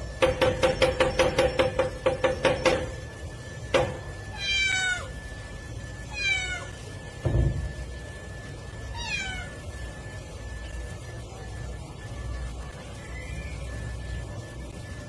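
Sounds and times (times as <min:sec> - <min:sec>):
cat meowing: 0:04.3 - 0:05.1, 0:06.1 - 0:06.8, 0:08.9 - 0:09.6.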